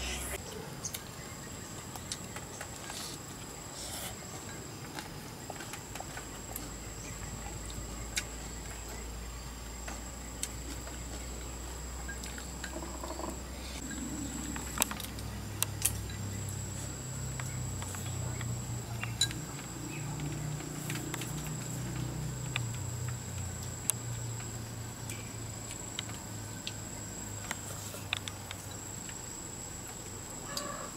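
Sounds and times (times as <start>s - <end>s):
low hum: 6.5s - 25.6s.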